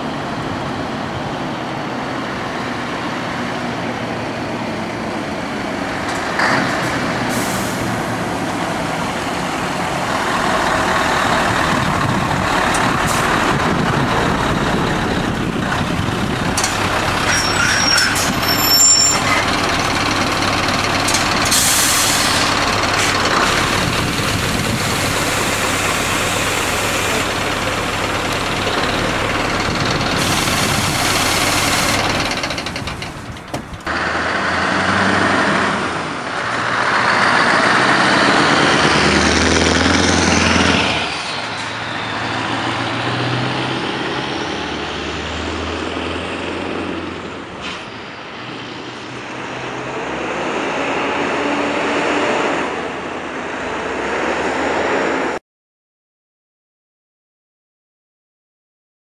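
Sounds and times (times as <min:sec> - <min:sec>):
truck diesel engine driving past: 0:00.0 - 0:55.4.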